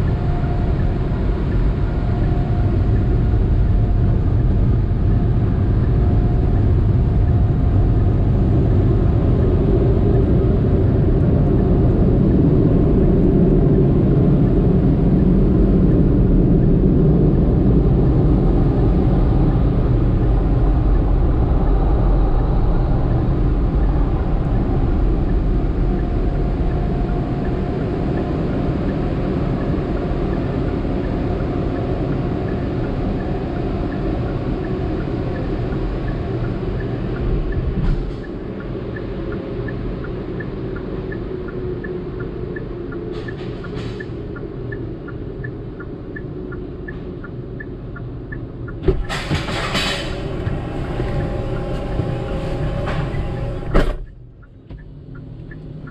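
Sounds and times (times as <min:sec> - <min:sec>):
car wash equipment rumbling: 0:46.4 - 0:55.9.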